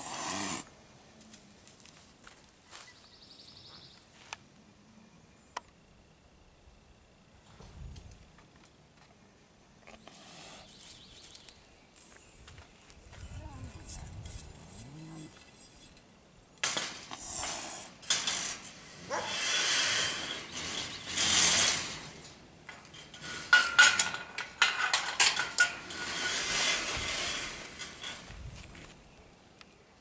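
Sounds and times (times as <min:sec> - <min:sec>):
serval hissing: 0:00.0 - 0:00.7, 0:17.1 - 0:22.0
metallic clinking and rattling: 0:16.6 - 0:28.3.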